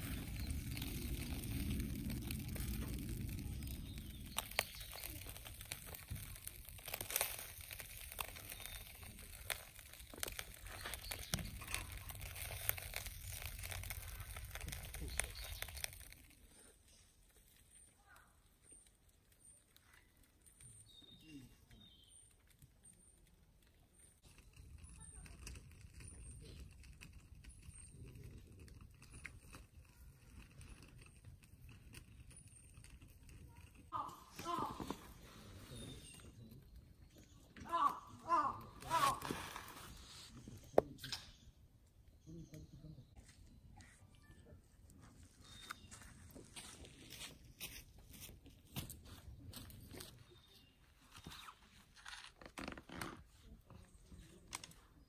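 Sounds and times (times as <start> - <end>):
low wind rumble: 0.0 - 8.0
meat sizzling on a grill: 0.0 - 16.3
small high chirps: 0.0 - 23.2
charcoal crackles and pops: 0.0 - 55.0.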